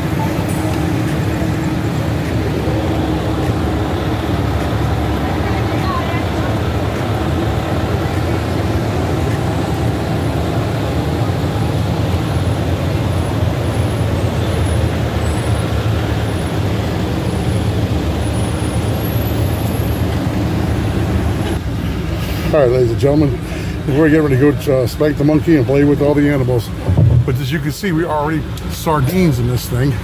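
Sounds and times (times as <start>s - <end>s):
minibus engines idling: 0.0s - 30.0s.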